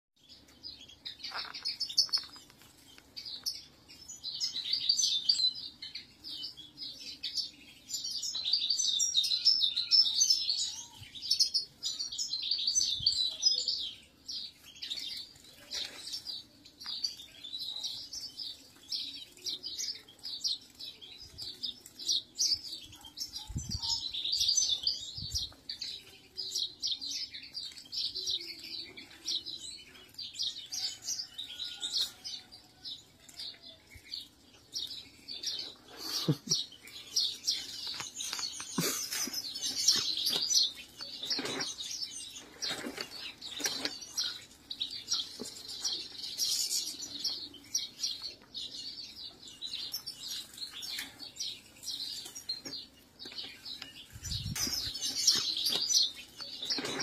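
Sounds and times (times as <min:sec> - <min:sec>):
flock of finches twittering: 0:00.2 - 0:57.0.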